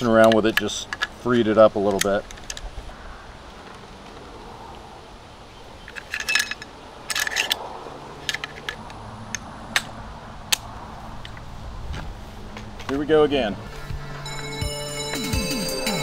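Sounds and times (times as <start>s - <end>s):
metal clicks of rifle reassembly: 0.0s - 1.2s, 1.9s - 2.7s, 5.8s - 7.6s, 8.2s - 9.9s.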